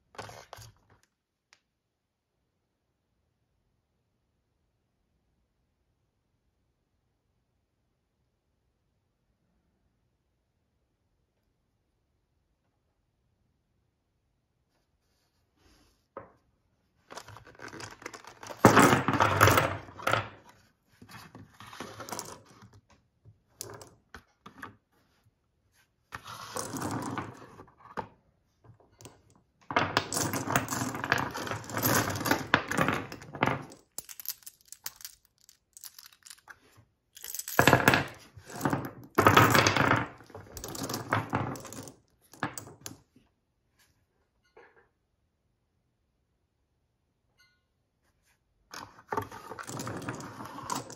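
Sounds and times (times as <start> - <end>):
metal cartridges clattering on wood: 17.2 - 20.4, 29.0 - 36.6, 37.2 - 43.0, 49.5 - 50.9.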